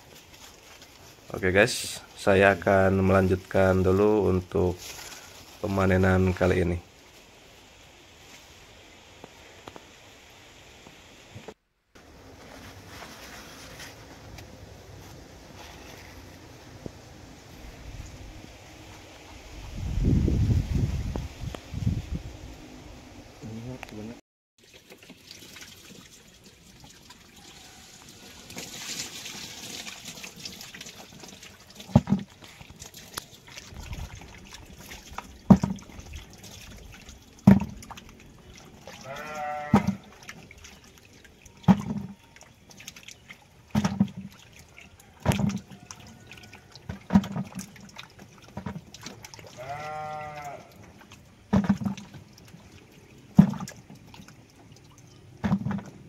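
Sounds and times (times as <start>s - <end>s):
rubbing cucumbers in water: 0.0s - 8.4s, 24.6s - 56.0s
cucumbers splashing into water: 28.4s - 56.0s
animal bleating: 39.0s - 40.0s, 49.6s - 50.8s.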